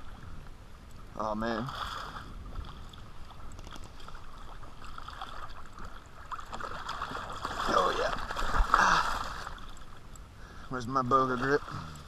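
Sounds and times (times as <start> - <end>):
fish splashing in water: 3.4 - 9.9.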